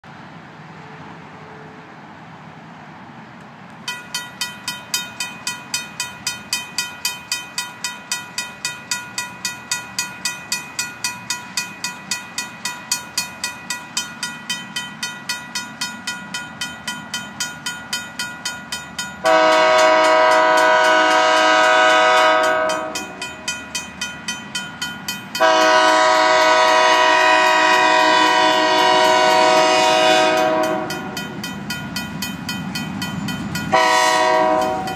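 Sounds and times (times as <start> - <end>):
railroad crossing bell ringing: 3.8 - 34.9
locomotive air horn blasts: 19.2 - 23.2, 25.4 - 31.2, 33.7 - 34.9.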